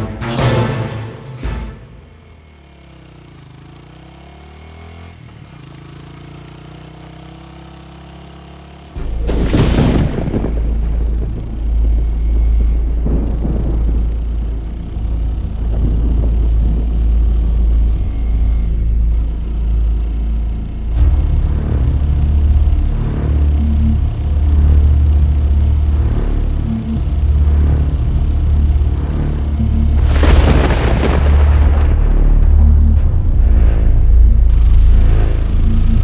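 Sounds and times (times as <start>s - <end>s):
low music drone: 0.0s - 3.8s, 8.9s - 36.0s
boom hit: 9.0s - 16.9s, 29.9s - 35.5s
deep engine-like rumble: 9.0s - 36.0s.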